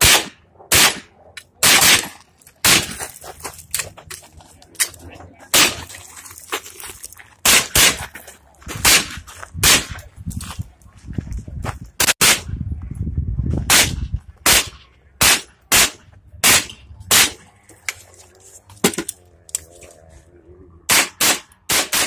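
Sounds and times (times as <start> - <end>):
carbine single shots: 0.0 - 3.0, 7.4 - 8.0, 13.7 - 17.4, 20.9 - 22.0.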